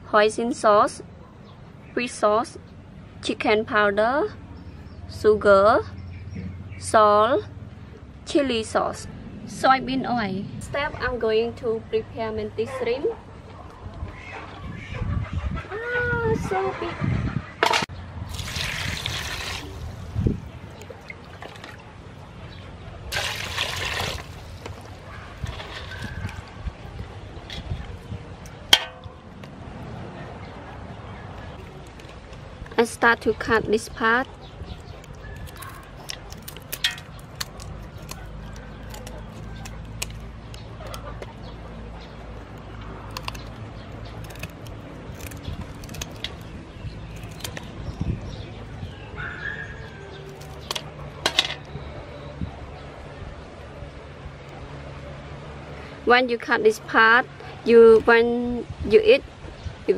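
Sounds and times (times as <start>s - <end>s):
water splashing into a basin: 18.3s - 20.0s, 23.1s - 24.9s
scissors snipping shells: 34.8s - 41.0s, 43.1s - 46.5s.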